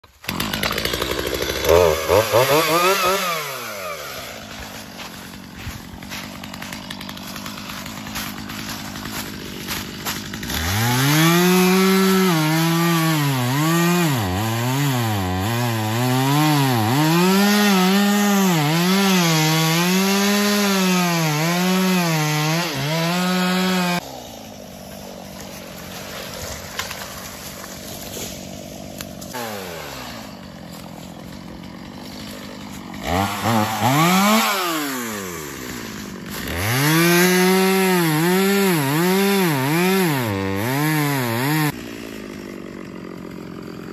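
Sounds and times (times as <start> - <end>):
chainsaw cutting wood: 0.0 - 43.9.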